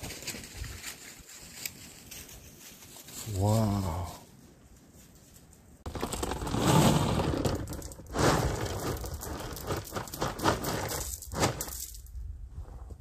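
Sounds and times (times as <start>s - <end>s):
gravel pouring from bucket: 5.9s - 12.0s.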